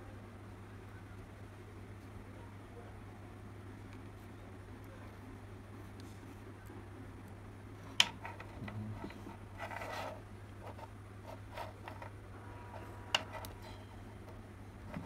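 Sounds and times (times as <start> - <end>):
scraping rustle: 8.2 - 12.1.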